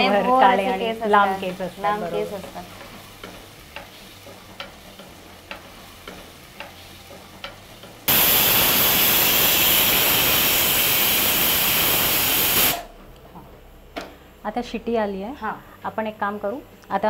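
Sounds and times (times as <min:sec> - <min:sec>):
food frying: 0:00.0 - 0:12.9
spatula stirring in pot: 0:02.2 - 0:08.0
pressure cooker steam hiss: 0:08.0 - 0:12.9.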